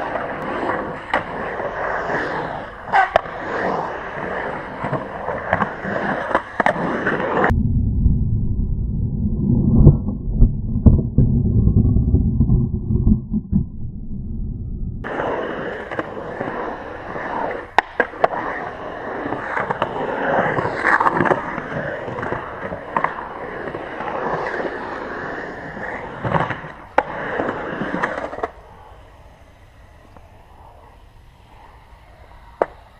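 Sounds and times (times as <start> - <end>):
skateboard clacks: 0.0 - 7.5, 15.0 - 31.0, 31.6 - 32.9
skateboard wheels rolling on concrete: 0.0 - 7.6, 15.0 - 32.9
muffled low rumble: 7.5 - 15.1.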